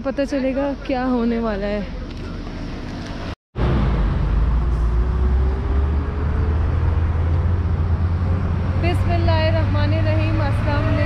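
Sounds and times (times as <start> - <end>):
road traffic rumble: 0.0 - 11.0
vehicle engine pulling away: 2.6 - 11.0.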